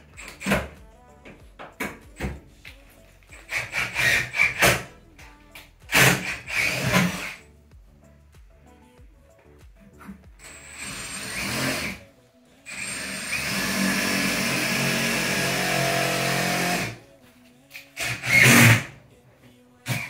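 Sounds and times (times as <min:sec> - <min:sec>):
handheld power tool running: 0:05.9 - 0:07.4, 0:10.4 - 0:12.0, 0:12.7 - 0:17.0, 0:18.0 - 0:18.9.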